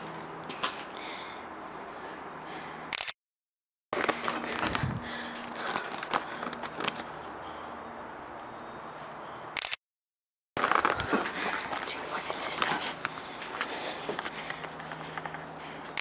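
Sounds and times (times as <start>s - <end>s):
camera handling clicks and scrapes: 4.0s - 7.1s.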